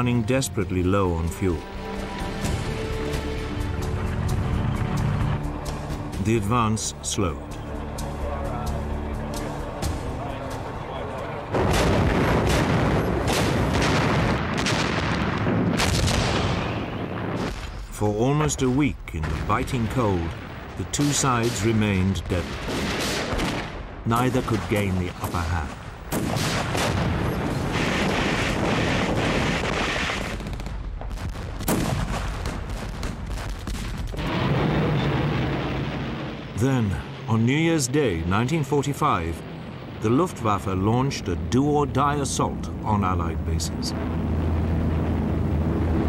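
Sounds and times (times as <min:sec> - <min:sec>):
gunshots: 0:11.5 - 0:17.8, 0:19.2 - 0:35.9
artillery blasts: 0:11.5 - 0:17.9, 0:19.2 - 0:37.4
rifle and machine-gun shots: 0:11.6 - 0:17.8, 0:20.8 - 0:35.0
continuous low rumble: 0:30.6 - 0:46.0
low steady drone: 0:34.5 - 0:46.0.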